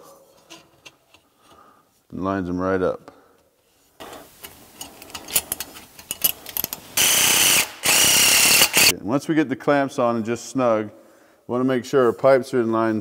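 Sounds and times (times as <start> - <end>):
metal hose clamps rattling: 4.2 - 8.9
cordless driver running: 7.0 - 8.9.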